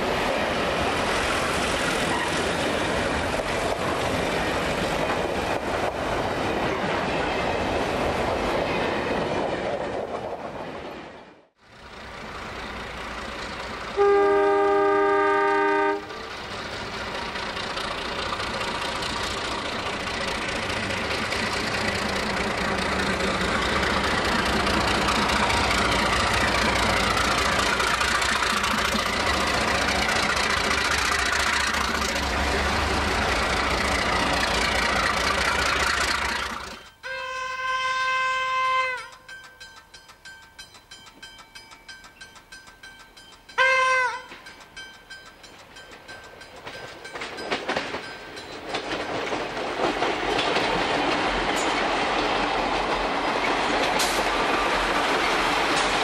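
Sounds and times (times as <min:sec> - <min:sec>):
diesel locomotive engines: 0:00.0 - 0:56.0
train rail noise: 0:00.0 - 0:56.0
locomotive air horn: 0:14.0 - 0:16.3, 0:37.0 - 0:39.2, 0:43.6 - 0:44.4.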